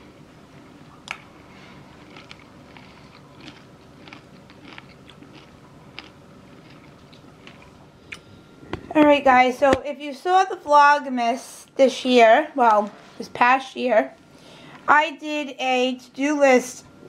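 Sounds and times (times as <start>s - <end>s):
person chewing crunchy food: 1.0s - 8.3s.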